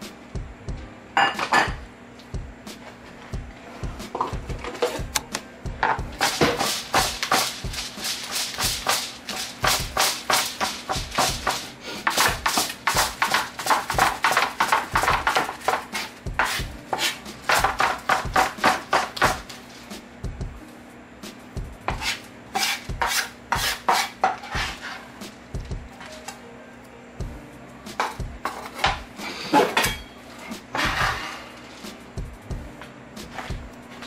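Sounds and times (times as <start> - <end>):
knife chopping on plastic board: 6.0 - 7.9, 8.8 - 19.5, 21.6 - 24.8.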